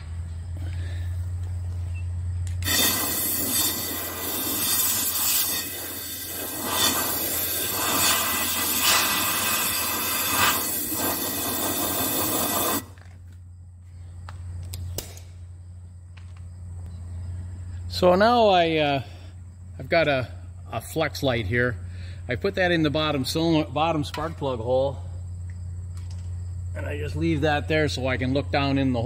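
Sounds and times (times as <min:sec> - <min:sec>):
compressed air hissing: 0:02.5 - 0:13.0.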